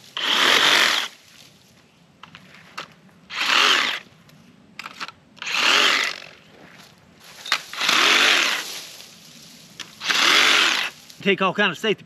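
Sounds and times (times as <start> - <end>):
power saw cutting bamboo: 0.0 - 1.1, 3.3 - 4.0, 5.4 - 6.3, 7.7 - 8.8, 10.0 - 11.0.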